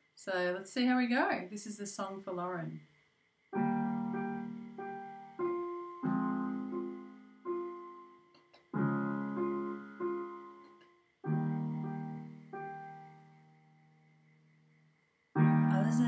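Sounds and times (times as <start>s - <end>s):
slow digital piano chords: 3.5s - 16.0s.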